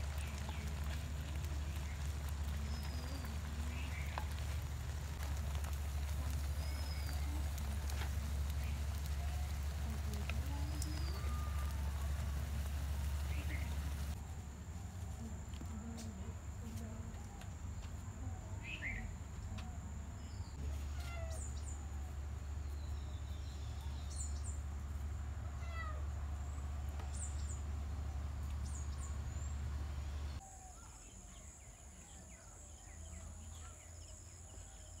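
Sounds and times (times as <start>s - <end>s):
low steady rumble: 0.0s - 17.4s, 21.4s - 30.4s.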